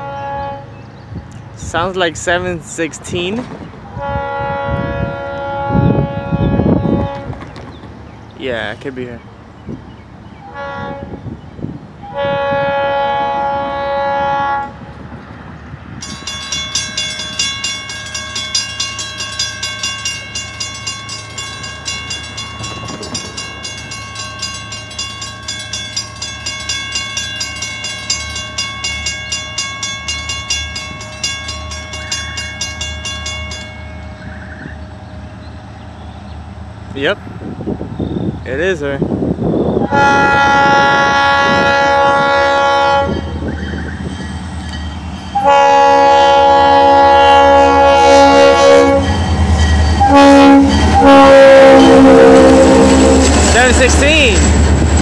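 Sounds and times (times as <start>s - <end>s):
locomotive air horn: 0.0s - 0.7s, 3.9s - 7.5s, 10.5s - 11.3s, 12.0s - 14.9s, 39.8s - 43.3s, 45.3s - 49.2s, 50.0s - 53.7s
train engine rumble: 0.0s - 55.0s
locomotive bell ringing: 16.0s - 35.5s, 40.0s - 55.0s.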